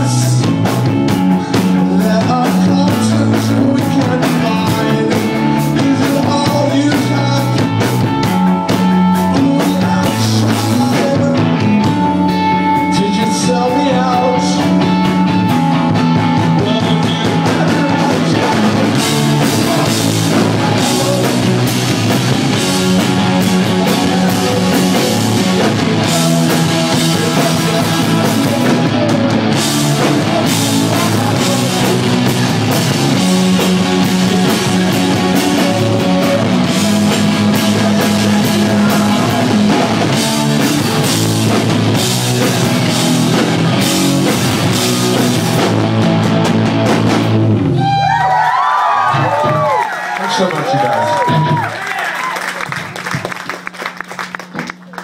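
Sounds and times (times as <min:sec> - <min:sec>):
man singing: 0:00.0 - 0:15.5, 0:16.3 - 0:43.4
live rock band: 0:00.0 - 0:55.0.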